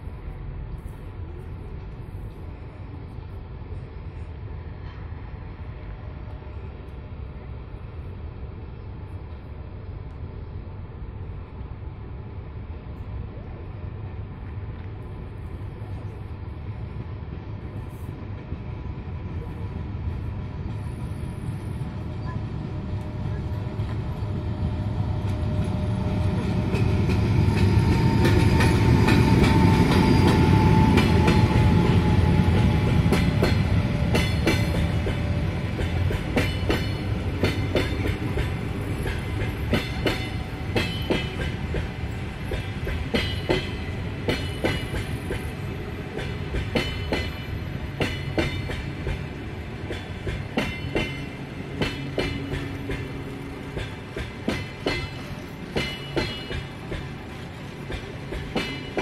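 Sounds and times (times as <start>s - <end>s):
locomotive rumble with whine: 0.0s - 59.0s
train wheels clicking over joints: 25.2s - 59.0s.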